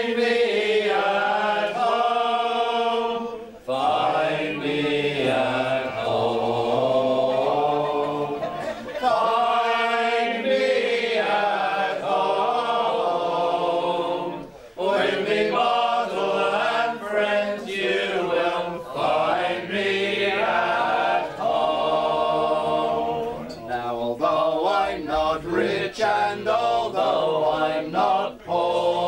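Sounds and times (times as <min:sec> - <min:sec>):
men singing folk chorus: 0:00.0 - 0:29.0.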